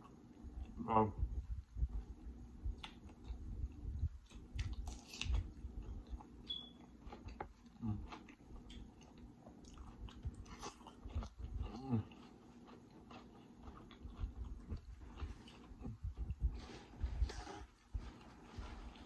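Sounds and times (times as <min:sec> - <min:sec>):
close chewing with mouth clicks: 0:01.9 - 0:16.6.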